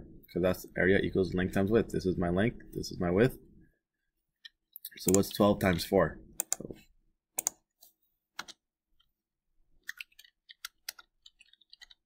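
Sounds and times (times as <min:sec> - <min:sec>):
keyboard keystrokes: 0:07.4 - 0:07.6
mouse clicks: 0:07.4 - 0:07.6.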